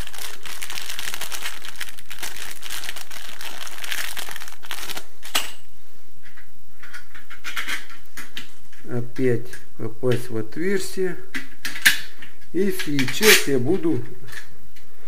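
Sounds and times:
plastic bag crinkling: 0:00.0 - 0:05.3.

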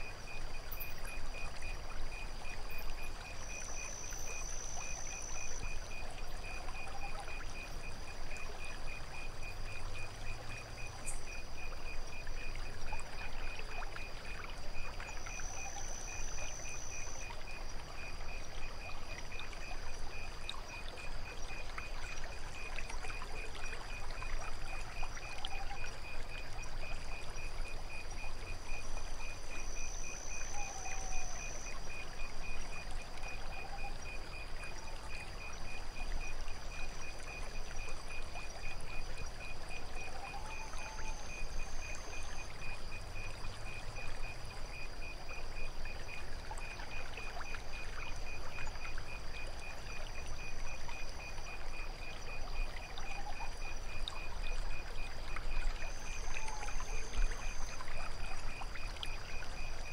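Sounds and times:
cricket chirping: 0:00.0 - 0:59.9
higher insect trill: 0:00.0 - 0:59.9.

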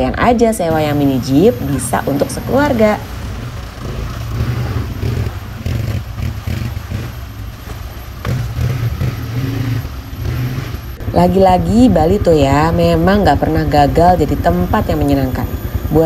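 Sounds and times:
quad bike engines revving: 0:00.0 - 0:16.0
water splashing: 0:00.7 - 0:09.4.

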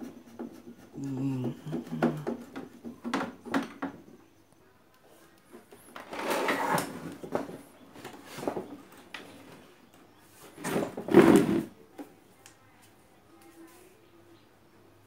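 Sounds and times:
plastic cabinet scraping: 0:06.0 - 0:08.7, 0:10.5 - 0:11.7.

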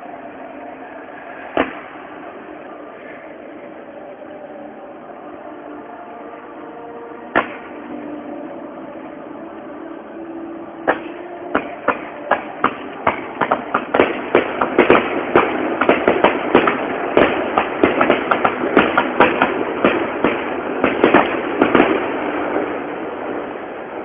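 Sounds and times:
fireworks bangs and crackle: 0:10.9 - 0:23.6.

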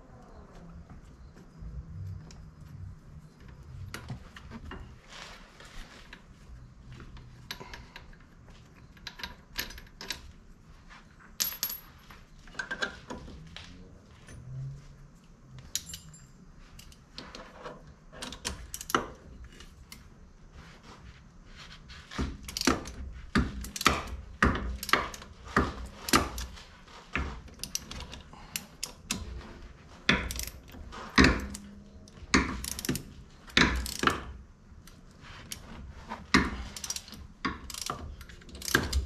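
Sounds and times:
metal tools clinking on steel: 0:15.6 - 0:17.5.

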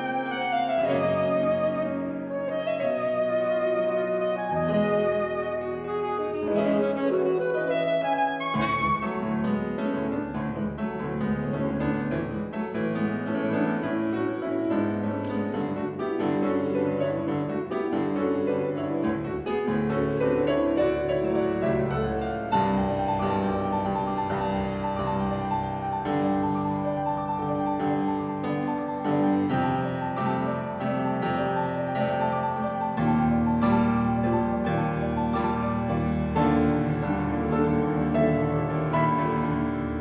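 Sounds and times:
alto saxophone: 0:00.0 - 0:09.5
grand piano: 0:00.0 - 0:40.0.

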